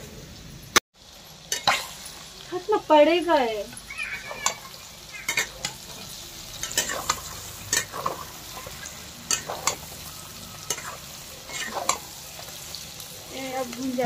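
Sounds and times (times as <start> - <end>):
meat sizzling in oil: 0.0 - 14.0
metal spatula scraping pan: 4.2 - 14.0.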